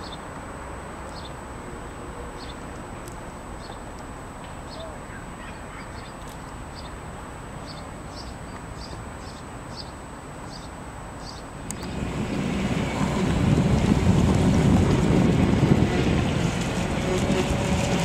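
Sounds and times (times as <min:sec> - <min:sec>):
wind buffeting the microphone: 0:11.7 - 0:18.0.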